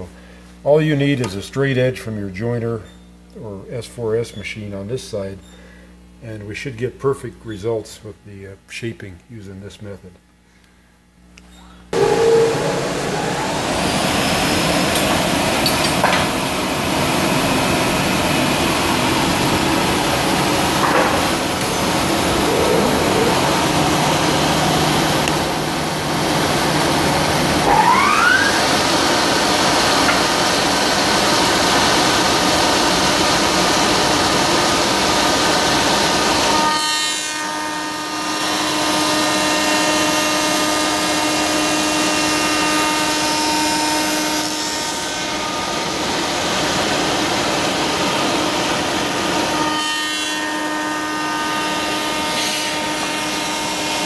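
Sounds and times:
brief rising whine: 0:12.0 - 0:15.6, 0:21.4 - 0:26.2, 0:27.2 - 0:30.6.

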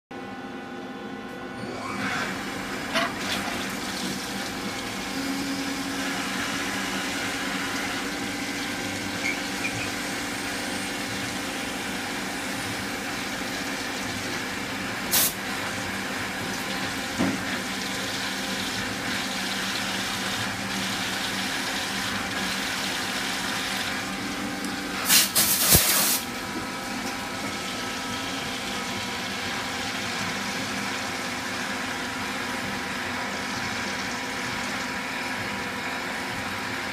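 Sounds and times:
lathe machine hum: 0:01.6 - 0:25.0
coolant hissing and splashing: 0:02.2 - 0:26.6.

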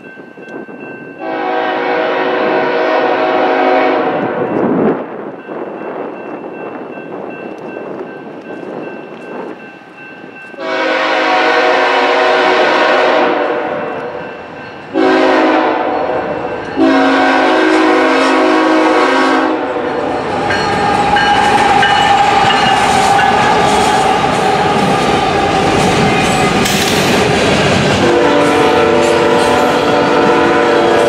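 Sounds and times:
locomotive engines and wheels: 0:00.0 - 0:01.5, 0:04.4 - 0:12.4, 0:13.1 - 0:18.2, 0:19.6 - 0:31.0
locomotive air horn blasts: 0:01.2 - 0:04.4, 0:10.6 - 0:14.2, 0:14.9 - 0:20.0, 0:28.0 - 0:31.0.

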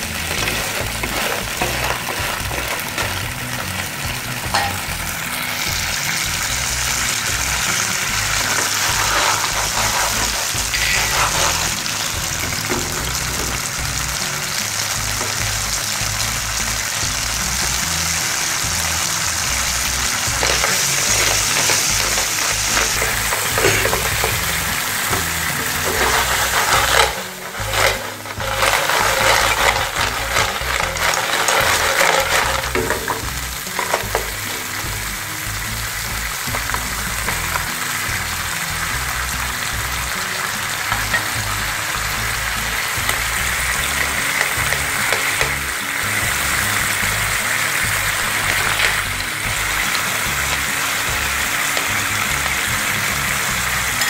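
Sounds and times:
shells rattling against pan: 0:00.0 - 0:03.3, 0:08.3 - 0:11.8, 0:20.3 - 0:34.8, 0:48.2 - 0:49.2
spatula stirring: 0:00.0 - 0:03.4, 0:08.2 - 0:13.5, 0:20.2 - 0:34.5
shellfish sizzling in a pan: 0:00.0 - 0:54.0.

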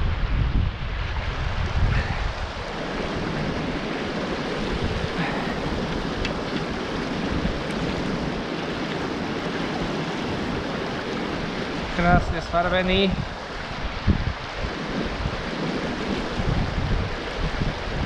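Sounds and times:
wind rumble on microphone: 0:00.0 - 0:18.0
stream rushing over stones: 0:00.8 - 0:18.0.

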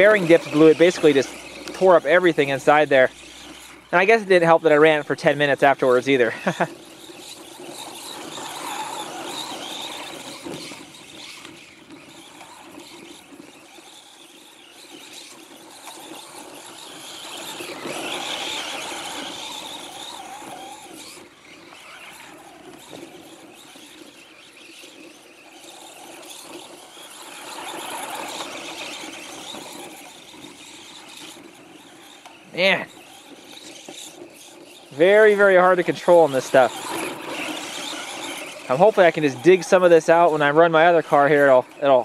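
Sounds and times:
toy truck electric motor whining: 0:00.0 - 0:42.0.

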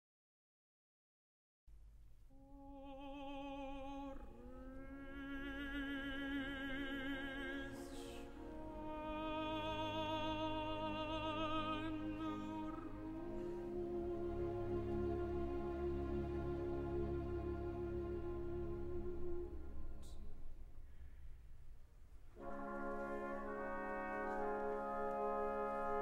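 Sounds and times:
operatic voice singing: 0:02.4 - 0:20.0
soft orchestral accompaniment: 0:02.8 - 0:20.8, 0:22.4 - 0:26.0.

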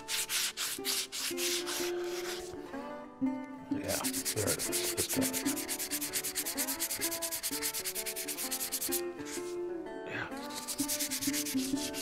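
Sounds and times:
sandpaper rubbing on stone: 0:00.0 - 0:02.5, 0:03.9 - 0:09.6, 0:10.4 - 0:12.0.

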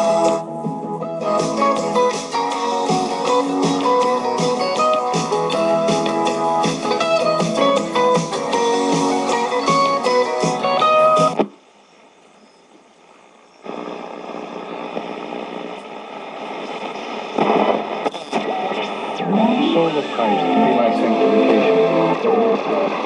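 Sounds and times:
guitar music on a radio: 0:00.0 - 0:11.6, 0:14.2 - 0:23.0
faint radio hiss: 0:00.0 - 0:23.0
radio static while tuning: 0:12.9 - 0:23.0.

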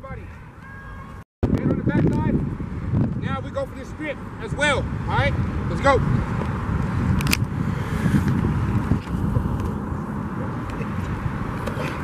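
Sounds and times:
low outdoor rumble: 0:01.4 - 0:12.0
sharp click: 0:07.2 - 0:07.5.

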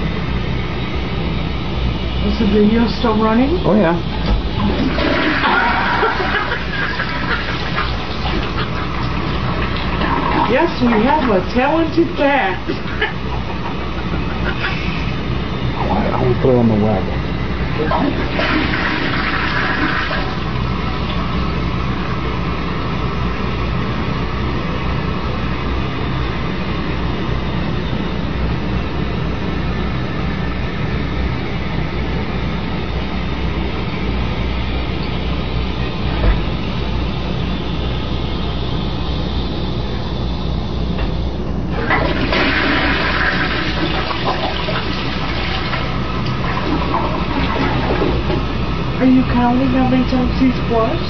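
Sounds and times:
toilet flushing: 0:02.0 - 0:23.0, 0:41.1 - 0:51.0
water running: 0:02.2 - 0:21.4, 0:41.7 - 0:51.0
toilet tank refilling: 0:03.8 - 0:12.2, 0:17.5 - 0:21.5, 0:41.7 - 0:49.0.

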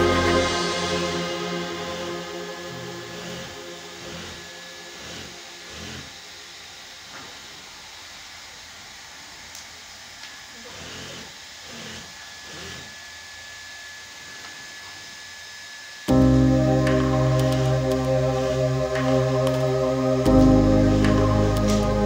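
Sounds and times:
loud music: 0:00.0 - 0:05.6, 0:16.1 - 0:22.0
hot-air blower hissing: 0:00.0 - 0:22.0.

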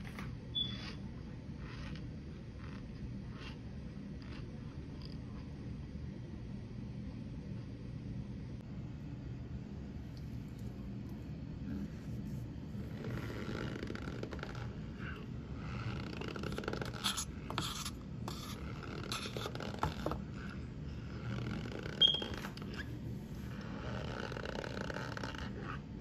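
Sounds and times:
short high squeak: 0:00.6 - 0:01.0, 0:22.0 - 0:22.4
metal spoon scraping powder: 0:13.0 - 0:22.9.

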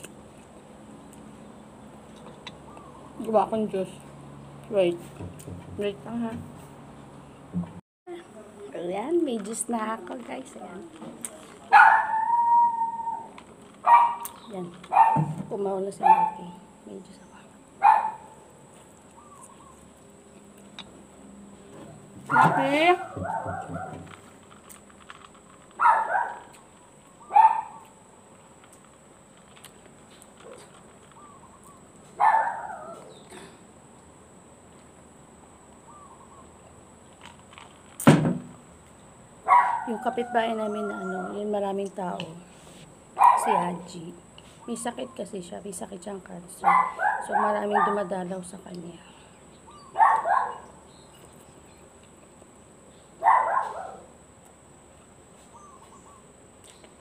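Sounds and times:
dog barking loudly: 0:11.7 - 0:13.2, 0:13.8 - 0:14.3, 0:14.9 - 0:15.3, 0:17.8 - 0:18.4, 0:22.3 - 0:24.1, 0:25.8 - 0:26.5, 0:27.3 - 0:27.8, 0:32.2 - 0:33.0, 0:39.5 - 0:40.0, 0:43.2 - 0:43.7, 0:46.6 - 0:48.1, 0:50.0 - 0:50.7, 0:53.2 - 0:54.1.

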